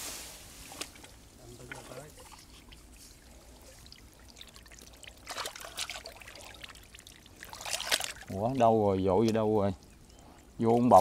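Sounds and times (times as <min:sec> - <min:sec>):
water splashing and trickling: 0:00.5 - 0:11.0.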